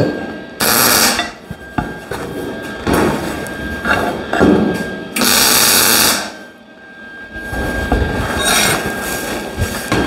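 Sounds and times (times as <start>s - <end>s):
welding arc crackling: 0.6s - 1.4s, 5.2s - 6.4s.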